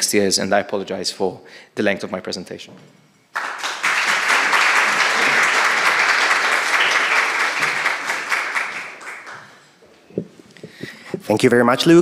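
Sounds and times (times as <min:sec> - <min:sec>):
audience applauding: 0:03.3 - 0:09.8.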